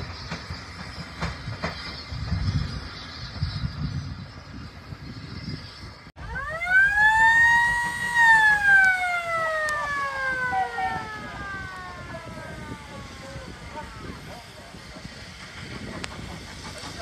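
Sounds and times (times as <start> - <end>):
steam locomotive whistle: 6.8 - 14.4.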